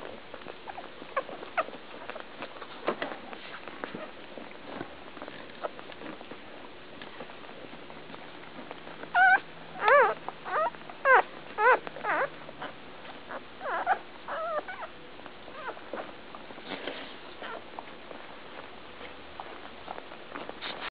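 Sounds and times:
puppies squeaking and whining: 0:00.0 - 0:06.3, 0:08.7 - 0:16.1, 0:16.7 - 0:18.7.

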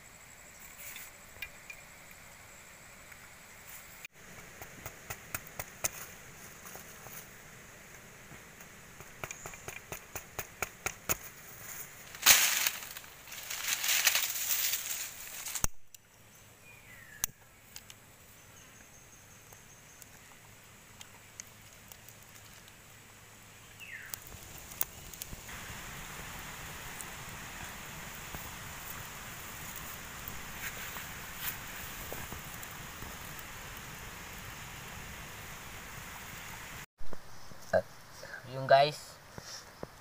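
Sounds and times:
outdoor ambience: 0:00.0 - 0:40.0
wood fire crackling and popping: 0:04.1 - 0:16.0, 0:19.5 - 0:36.0
fire flaring with a rush: 0:20.0 - 0:37.5.

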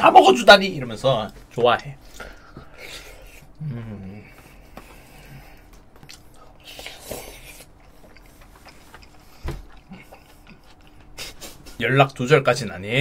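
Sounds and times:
chewing spaghetti: 0:05.5 - 0:11.3.

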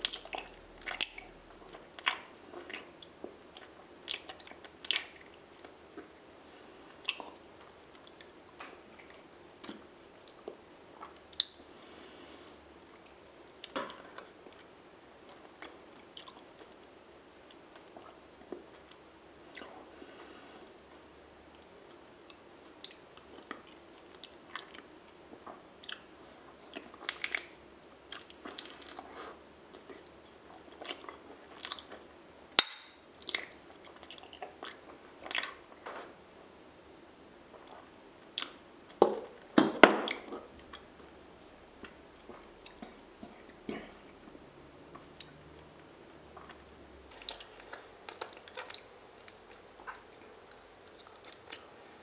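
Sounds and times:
wet chewing with clicks: 0:00.0 - 0:06.2, 0:08.0 - 0:11.6, 0:15.3 - 0:16.8, 0:25.8 - 0:29.0, 0:29.7 - 0:32.0, 0:33.2 - 0:35.6, 0:37.6 - 0:39.0, 0:41.8 - 0:43.6, 0:44.9 - 0:52.0.

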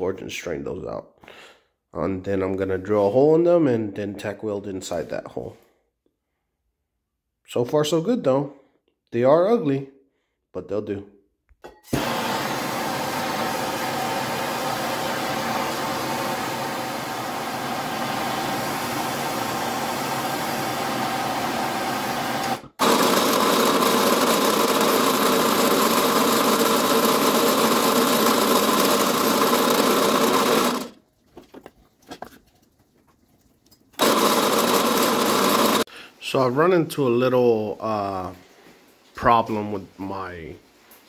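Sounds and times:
gas torch hissing: 0:11.9 - 0:22.8
drill press motor running: 0:11.9 - 0:31.0, 0:34.0 - 0:35.9.

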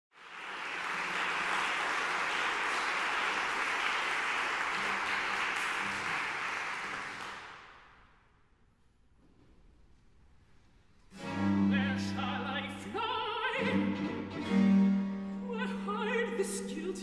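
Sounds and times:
audience applauding: 0:00.1 - 0:08.0.

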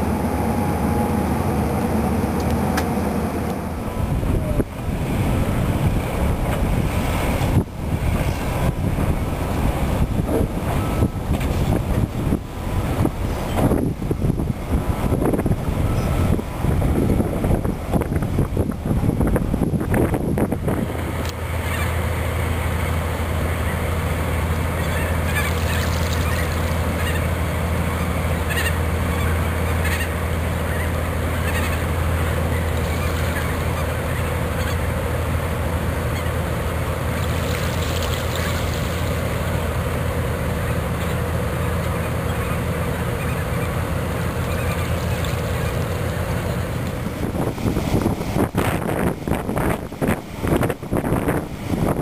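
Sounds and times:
steady low drone: 0:00.0 - 0:52.0
waterfowl honking: 0:21.6 - 0:22.0, 0:24.6 - 0:35.1, 0:36.0 - 0:39.8, 0:40.5 - 0:46.8.

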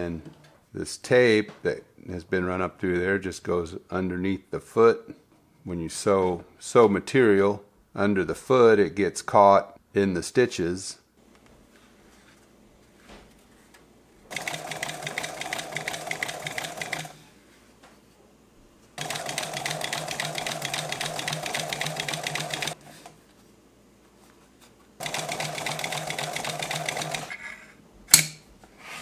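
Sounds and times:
industrial sewing machine stitching: 0:14.3 - 0:17.2, 0:19.0 - 0:22.8, 0:25.0 - 0:27.3.

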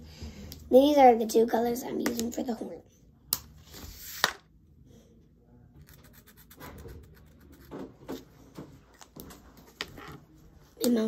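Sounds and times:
marker scratching on paper: 0:05.8 - 0:08.2.

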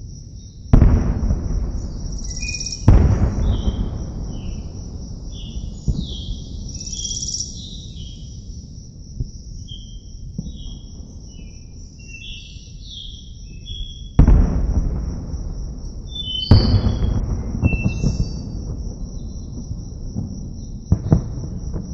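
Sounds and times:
loud explosion boom: 0:00.8 - 0:08.1, 0:14.2 - 0:21.9.

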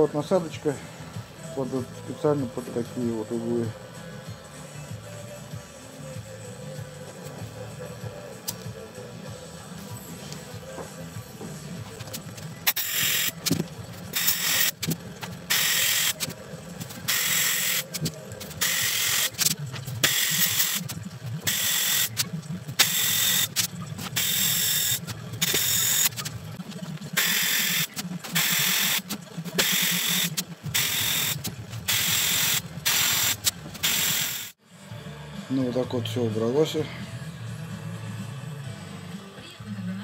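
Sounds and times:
sandblasting gun hissing: 0:12.7 - 0:13.5, 0:14.1 - 0:14.8, 0:15.5 - 0:16.3, 0:17.1 - 0:18.0, 0:18.6 - 0:20.8, 0:21.5 - 0:22.2, 0:22.8 - 0:23.6, 0:24.2 - 0:26.2, 0:27.2 - 0:29.0, 0:29.6 - 0:34.6.

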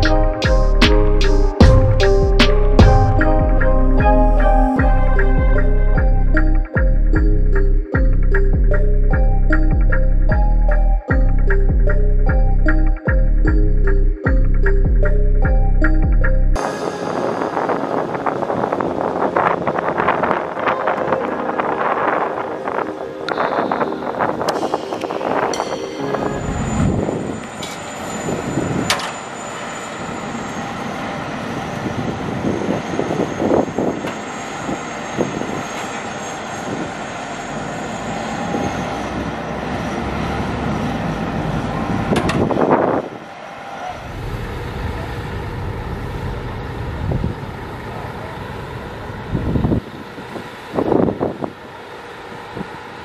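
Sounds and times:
high whine: 0:00.0 - 0:53.0
heavy machinery engine rumbling: 0:11.2 - 0:53.0.

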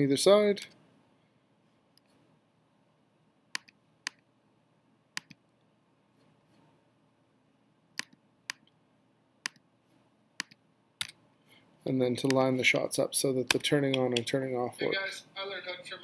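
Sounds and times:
computer mouse clicks: 0:03.5 - 0:04.2, 0:05.2 - 0:05.4, 0:08.0 - 0:08.8, 0:09.4 - 0:09.6, 0:10.4 - 0:11.2.

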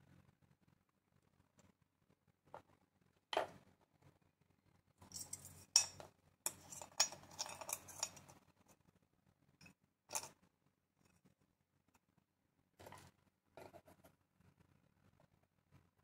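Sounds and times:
metal parts clinking on wood: 0:05.1 - 0:08.3.

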